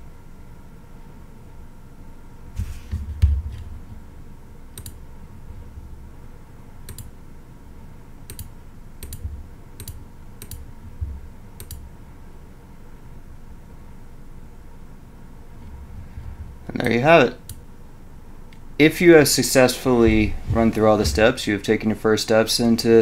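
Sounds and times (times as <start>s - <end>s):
computer mouse clicks: 4.7s - 5.0s, 6.9s - 7.1s, 8.3s - 10.7s, 11.6s - 11.9s
dull low thumps: 9.2s - 9.6s, 10.7s - 11.4s, 15.6s - 16.7s, 19.9s - 21.6s.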